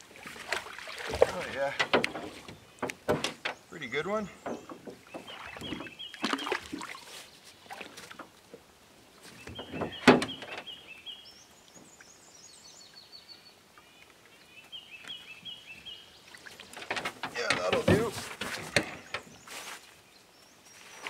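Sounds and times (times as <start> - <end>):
knocks and clatter: 1.7 - 3.6, 16.7 - 19.3
bird singing: 2.1 - 7.8, 9.2 - 21.0.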